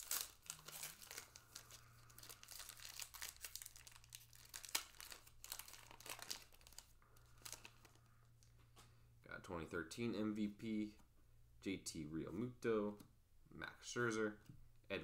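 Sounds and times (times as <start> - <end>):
wrapper tearing and crinkling: 0.0 - 8.0.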